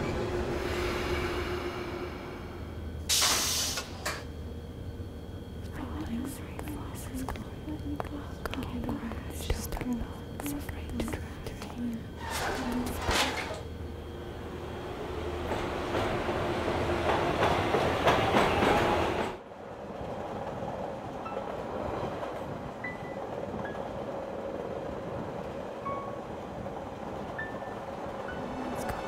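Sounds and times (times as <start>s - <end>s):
train clattering and rattling: 0.0s - 4.4s, 11.0s - 13.8s, 14.5s - 29.0s
train carriage running noise: 0.0s - 29.0s.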